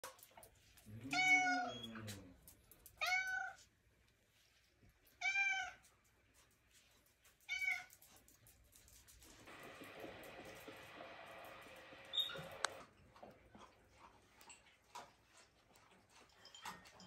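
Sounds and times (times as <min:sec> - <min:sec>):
cat meowing: 0:01.1 - 0:01.9, 0:03.0 - 0:03.6.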